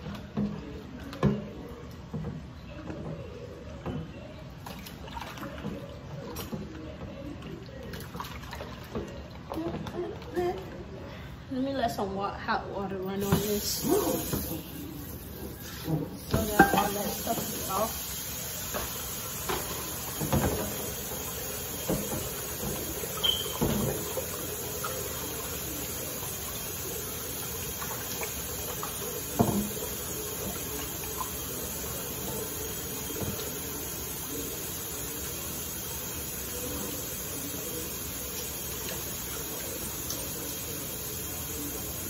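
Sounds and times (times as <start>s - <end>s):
utensils and pan clinking: 15.8s - 17.8s.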